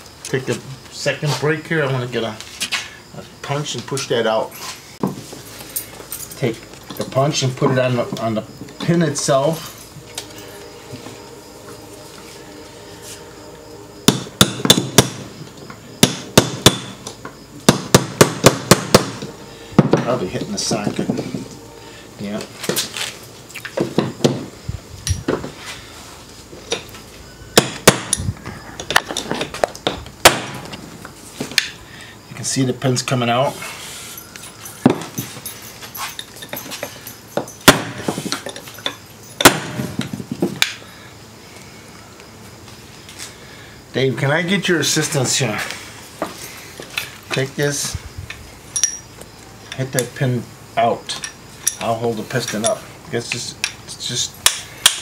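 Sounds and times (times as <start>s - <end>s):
sharp metal clinks: 5.6s - 12.6s, 34.0s - 39.8s, 48.3s - 50.1s, 51.0s - 55.0s
hammer striking steel punch: 14.0s - 15.2s, 16.0s - 17.0s, 17.6s - 20.2s, 27.6s - 28.2s, 30.2s - 30.6s, 37.6s - 38.1s, 39.4s - 39.8s.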